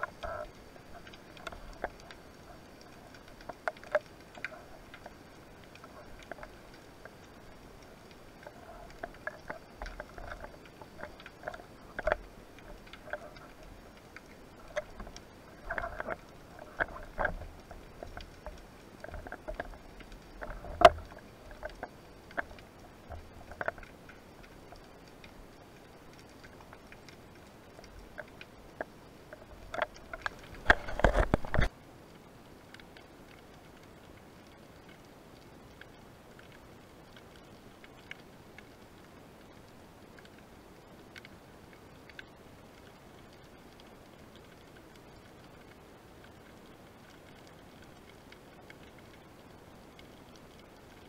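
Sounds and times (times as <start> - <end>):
underwater clicks and knocks: 0.0 - 25.4, 26.1 - 31.7.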